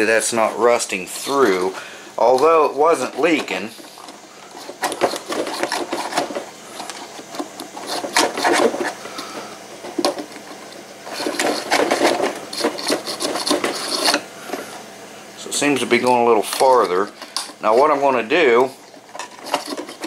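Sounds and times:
wire scraping inside tube: 3.0 - 9.0, 10.5 - 14.2.

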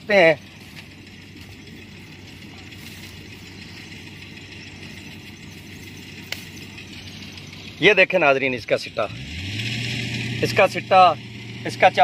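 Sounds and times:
combine harvester engine rumble: 0.0 - 12.0
sharp click: 6.2 - 6.6.

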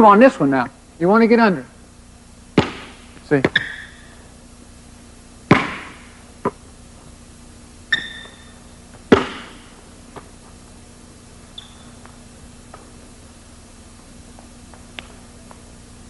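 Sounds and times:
basketball smacking: 2.6 - 4.1, 5.5 - 6.6, 9.1 - 9.7
sneaker squeak on hardwood: 3.5 - 4.1, 7.9 - 8.6, 11.5 - 12.0.

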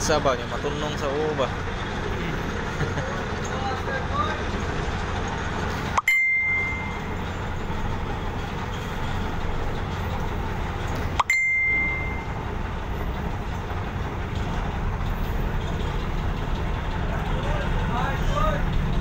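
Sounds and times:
ferry engine rumble: 0.0 - 19.0
bell-like ding: 6.0 - 7.2, 11.2 - 12.4.

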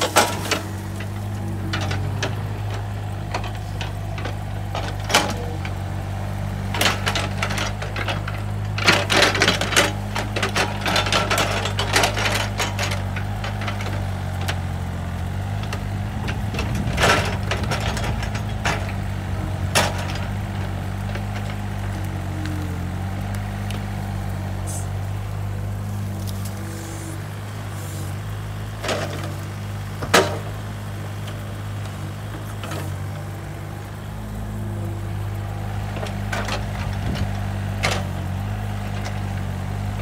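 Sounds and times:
bucket clanks and rattles: 0.0 - 5.8, 6.7 - 14.7, 15.6 - 21.7, 28.8 - 30.7
excavator diesel engine running: 0.0 - 40.0.

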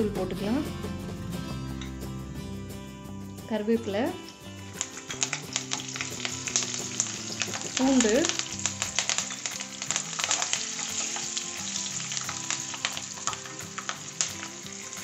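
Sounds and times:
garlic sizzling in hot oil: 4.6 - 15.0.

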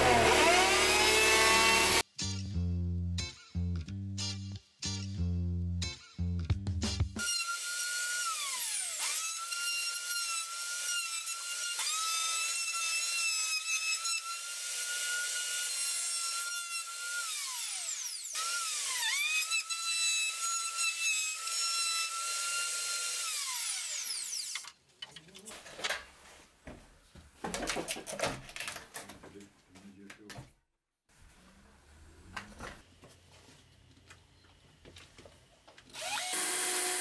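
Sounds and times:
router motor whining: 0.0 - 2.0, 35.9 - 37.0.

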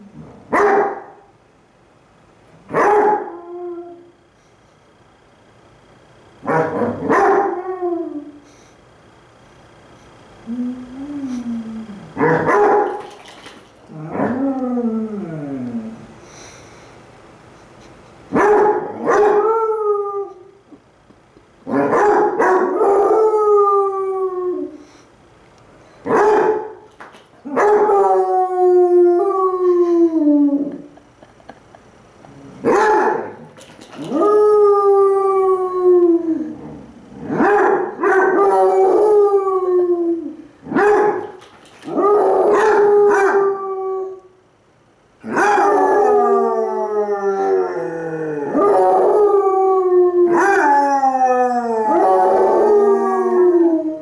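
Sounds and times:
dogs howling: 27.4 - 31.0, 32.6 - 37.4, 38.0 - 44.3, 45.2 - 54.0.

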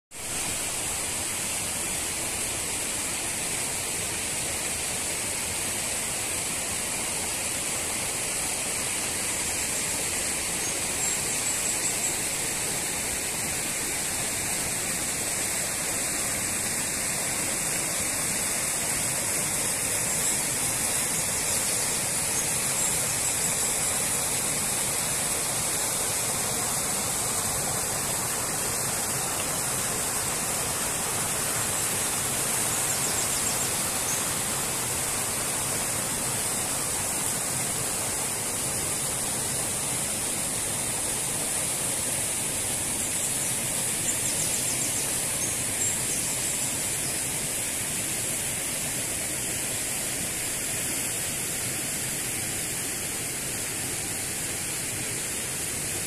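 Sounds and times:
stream rushing over stones: 0.1 - 56.0.

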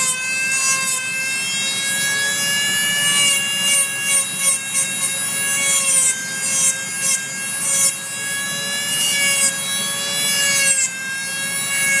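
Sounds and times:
rotary tool whining: 0.0 - 12.0.

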